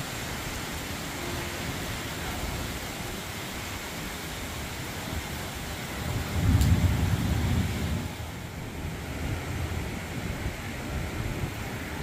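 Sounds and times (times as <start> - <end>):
rain hissing: 0.0 - 12.0
thunder rumble: 5.1 - 12.0.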